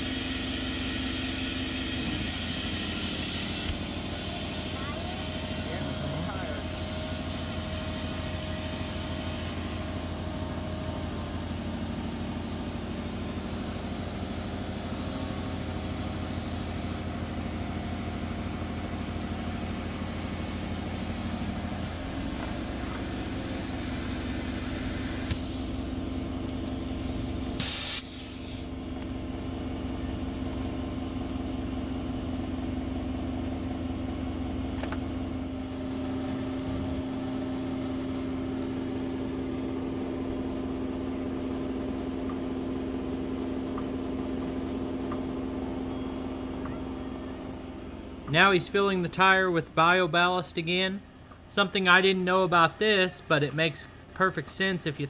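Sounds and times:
engine running: 0.0s - 55.0s
sharp hiss of air: 26.9s - 28.7s.

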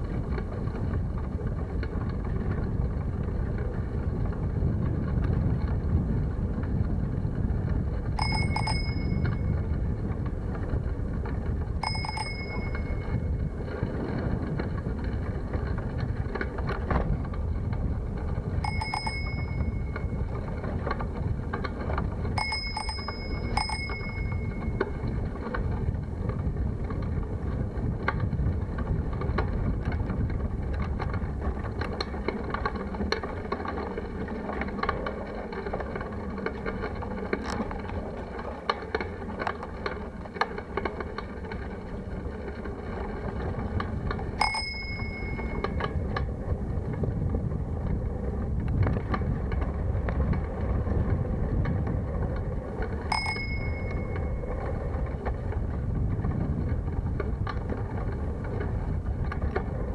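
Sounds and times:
bicycle riding on rough lane: 0.0s - 59.9s
bicycle bell ringing: 8.2s - 9.7s, 11.8s - 13.4s, 18.6s - 20.2s, 22.3s - 25.2s, 44.4s - 45.9s, 53.1s - 54.4s.

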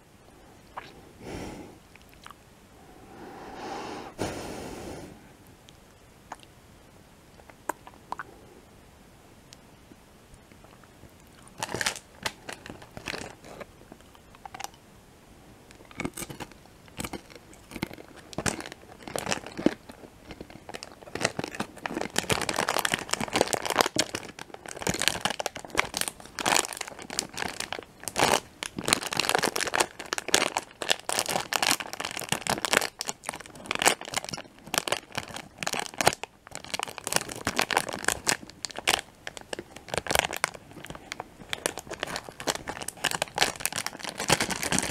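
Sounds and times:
plastic wrapper crinkling: 10.6s - 14.8s, 15.7s - 44.9s.

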